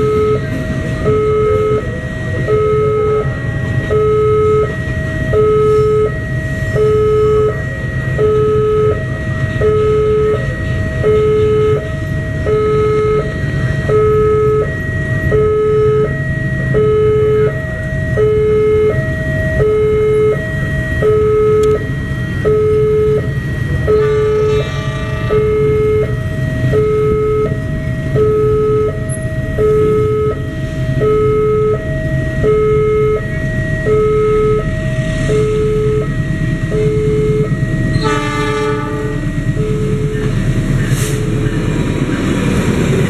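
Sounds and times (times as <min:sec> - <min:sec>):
level crossing two-tone alarm: 0:00.0 - 0:40.8
freight train rumbling on track: 0:00.0 - 0:43.0.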